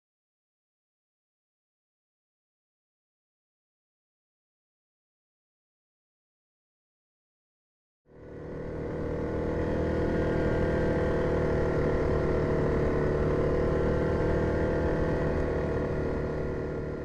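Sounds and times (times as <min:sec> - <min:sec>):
atv engine running: 0:08.1 - 0:17.0.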